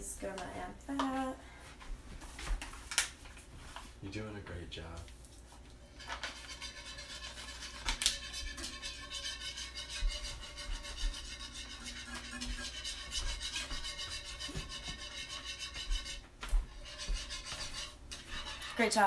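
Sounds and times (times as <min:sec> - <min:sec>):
whisk scraping a pan: 0:05.8 - 0:19.0.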